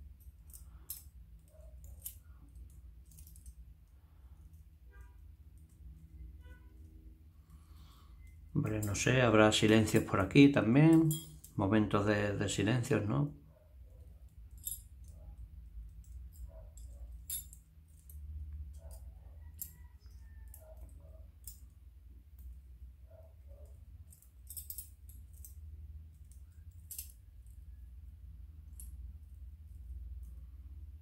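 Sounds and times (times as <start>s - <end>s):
metal puzzle and chain clinking: 0.0s - 12.7s, 13.5s - 30.8s
low steady hum: 0.0s - 31.0s.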